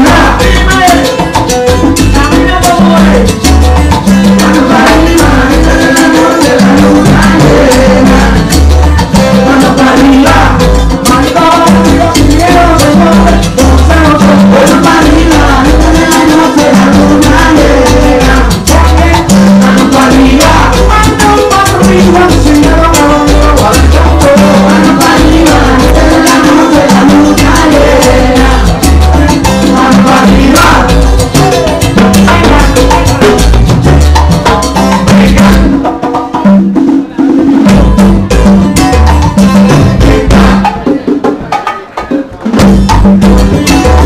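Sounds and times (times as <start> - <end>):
repeating bass line: 0.0 - 41.1, 42.6 - 44.0
congas: 0.0 - 44.0
live latin band playing: 0.0 - 44.0
maracas: 0.0 - 44.0.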